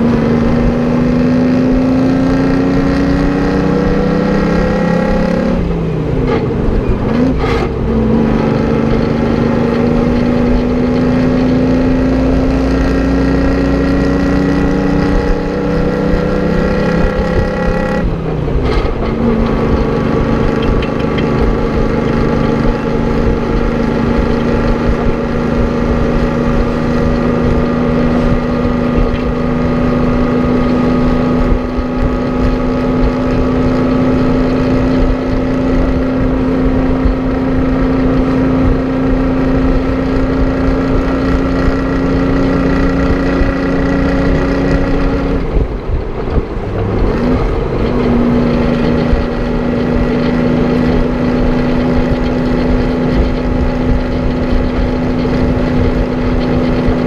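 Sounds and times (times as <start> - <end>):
wind buffeting microphone: 5.5 - 57.0
diesel truck engine under load: 5.6 - 57.0.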